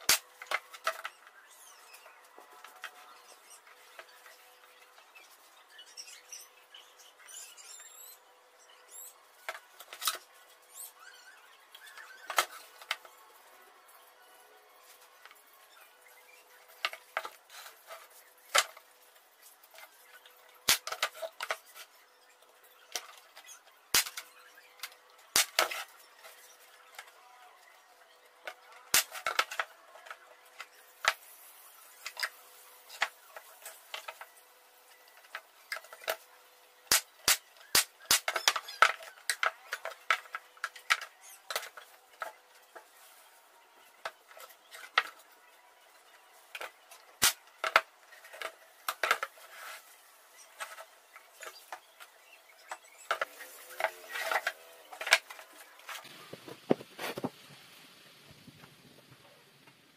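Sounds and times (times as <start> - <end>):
plywood pieces knocking together: 36.9 - 42.4.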